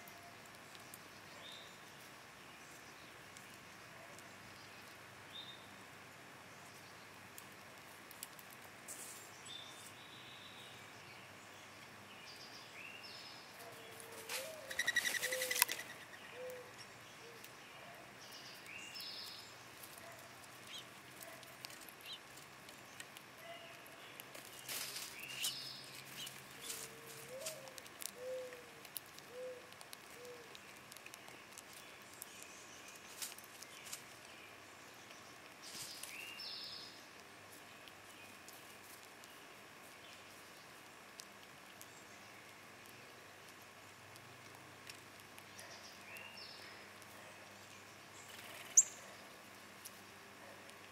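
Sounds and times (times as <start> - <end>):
rapid rasping bird call: 14.3 - 16.7
high bird chirps: 14.6 - 16.6.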